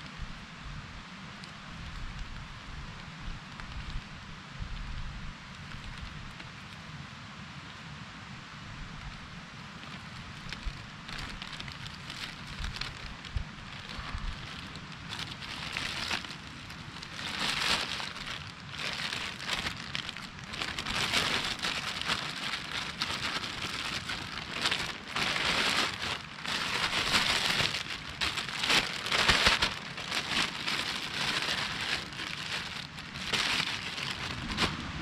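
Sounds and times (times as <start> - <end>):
plastic bag crinkling: 9.8 - 35.0.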